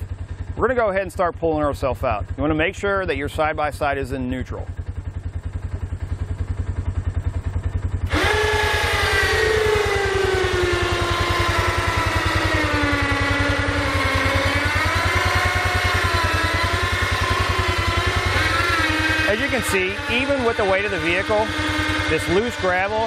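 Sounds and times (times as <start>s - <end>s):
engine idling: 0.0s - 23.0s
electric winch whining: 4.9s - 23.0s.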